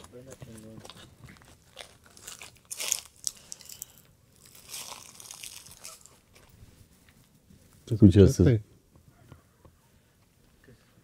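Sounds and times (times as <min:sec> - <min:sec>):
footsteps crunching on dry leaves: 0:00.3 - 0:03.8, 0:04.4 - 0:06.5.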